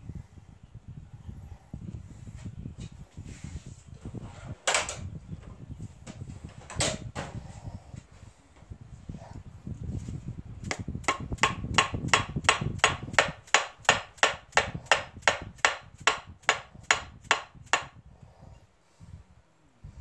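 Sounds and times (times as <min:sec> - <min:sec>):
hammer blows on metal: 0:10.6 - 0:18.0.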